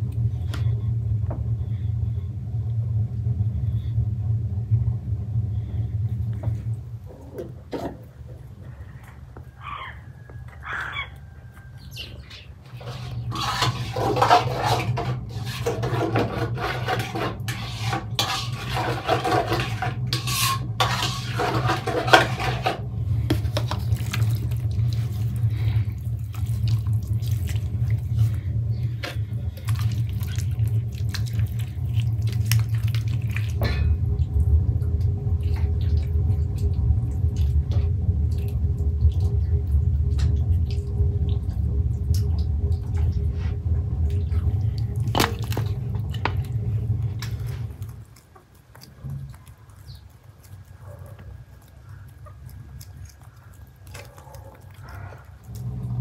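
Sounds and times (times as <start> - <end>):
steady low hum: 0.0 - 56.0
marinade squelching in a bowl: 11.1 - 56.0
hands squishing marinade into chicken: 20.9 - 55.8.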